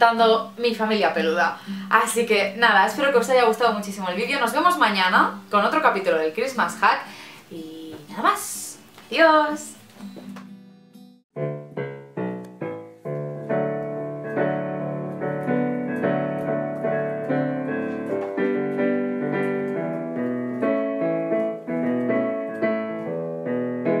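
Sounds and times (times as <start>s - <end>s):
solo piano: 11.4s - 24.0s.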